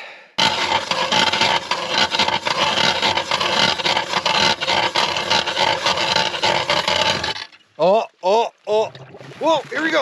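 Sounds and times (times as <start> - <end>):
ice auger scraping through ice: 0.4 - 7.6.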